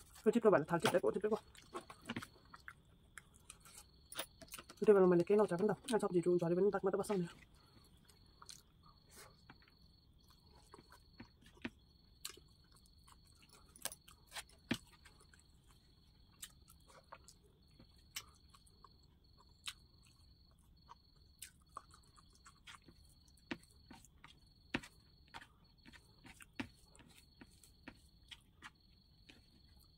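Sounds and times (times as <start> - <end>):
person chewing food: 0.0 - 0.2, 1.4 - 4.8, 7.4 - 29.9.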